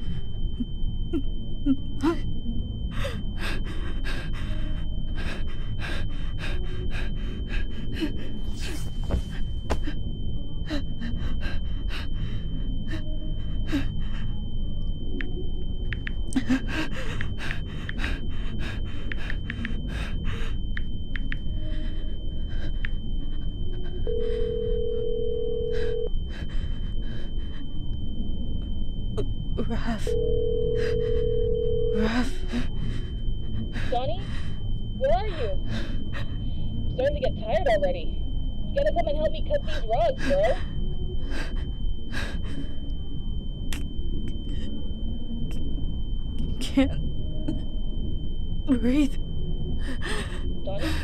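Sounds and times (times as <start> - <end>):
high-pitched ringing tone: 0.0 - 51.0
low rumble: 0.0 - 51.0
person hyperventilating: 2.9 - 10.0, 16.3 - 20.7, 21.6 - 24.8, 49.8 - 51.0
phone ringing: 24.1 - 26.1.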